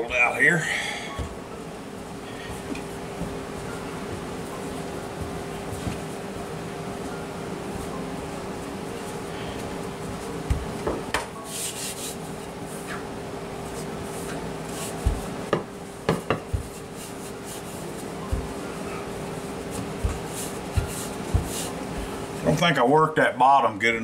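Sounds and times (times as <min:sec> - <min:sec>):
rolling pin rubbing on dough: 0:02.0 - 0:10.8, 0:11.4 - 0:22.6
rolling pin knocking on counter: 0:15.0 - 0:16.8.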